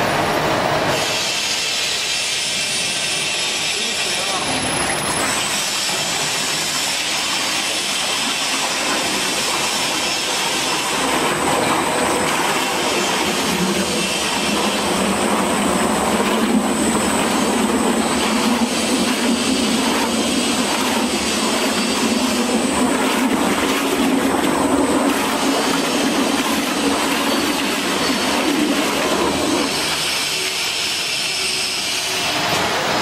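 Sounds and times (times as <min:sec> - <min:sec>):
mixer churning and splashing liquid: 0:00.1 - 0:33.0.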